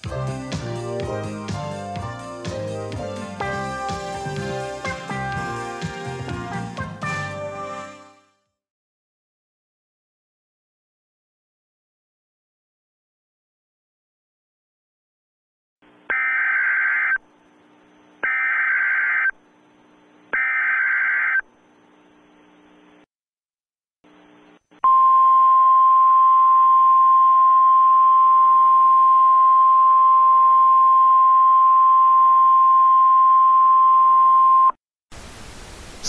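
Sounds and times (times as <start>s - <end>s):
screeching data-tone bursts: 16.1s - 17.2s, 18.2s - 19.4s, 20.3s - 21.5s
faint hiss: 35.1s - 36.0s.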